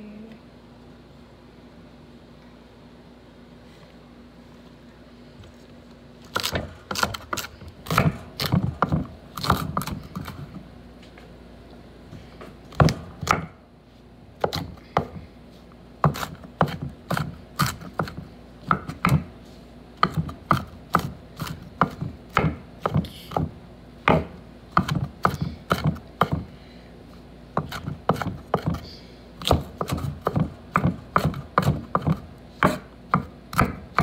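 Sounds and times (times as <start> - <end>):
knife chopping on wooden board: 6.3 - 10.6, 12.7 - 13.6, 14.4 - 15.2, 16.0 - 19.4, 20.0 - 26.5, 27.5 - 28.8, 29.4 - 34.0.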